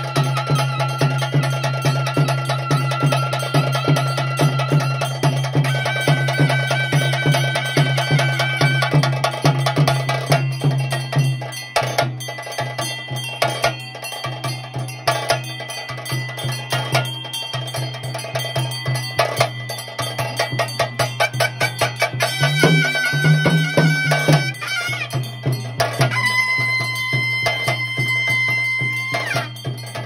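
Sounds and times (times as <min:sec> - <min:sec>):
wind instrument long notes: 0:00.0 - 0:09.1, 0:21.2 - 0:29.8
drums: 0:00.0 - 0:30.0
small metal percussion: 0:00.0 - 0:30.0.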